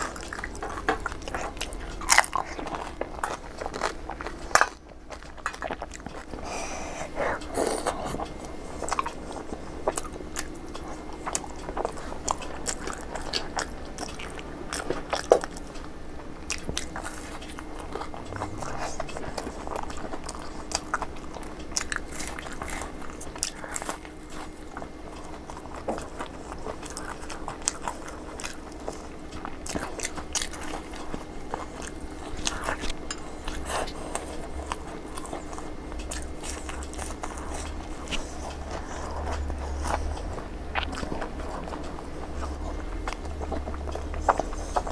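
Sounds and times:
crunchy chewing: 0.0s - 44.9s
wet mouth clicks: 29.8s - 44.9s.

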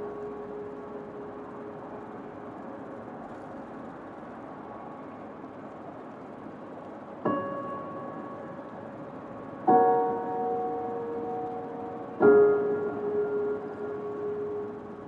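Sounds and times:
piano music: 0.0s - 2.9s, 7.2s - 15.0s
steady rushing noise: 0.0s - 15.0s.

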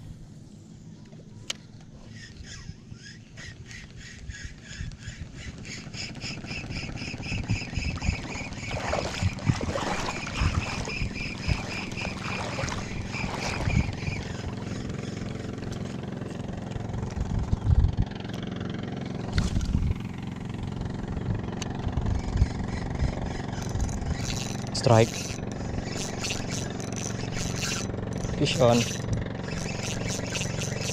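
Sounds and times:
wind buffeting microphone: 4.0s - 15.9s, 16.8s - 18.3s, 19.2s - 30.9s
fishing reel whirring: 5.0s - 17.6s, 21.6s - 30.9s.

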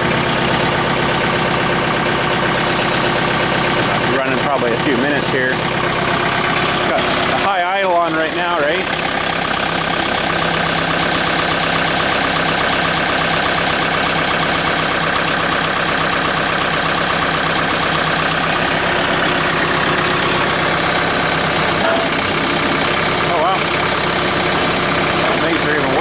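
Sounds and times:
diesel engine running at high idle: 0.0s - 26.0s.

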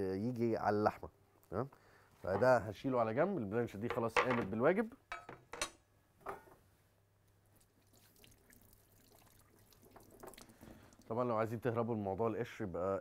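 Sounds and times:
tap water running over hands: 7.9s - 11.1s.

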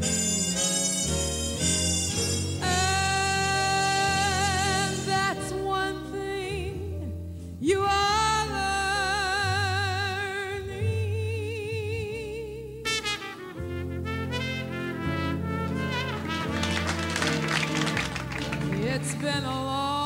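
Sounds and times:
big band playing: 0.0s - 5.4s, 12.9s - 19.5s
woman singing with vibrato: 2.6s - 12.9s, 18.8s - 20.0s.

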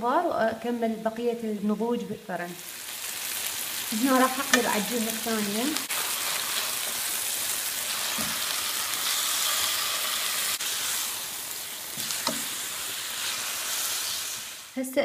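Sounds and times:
chicken sizzling in a pan: 2.4s - 14.8s
tongs clicking against pan: 4.4s - 4.9s.

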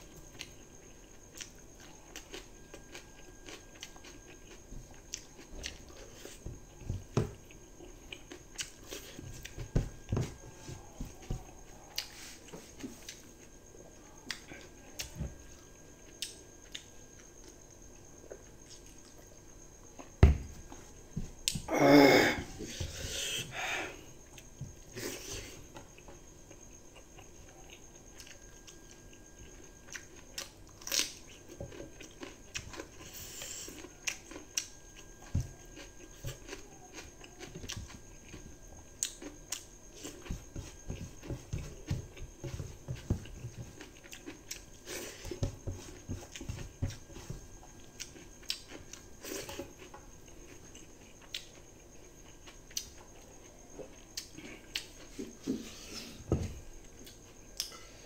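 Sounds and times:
chewing and lip-smacking: 47.6s - 55.1s.

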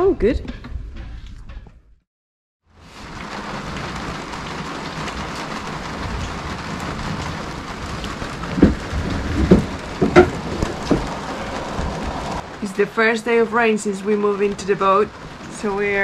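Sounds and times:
rain hissing on boat: 2.7s - 16.0s
loud dull thumps: 8.4s - 11.2s.

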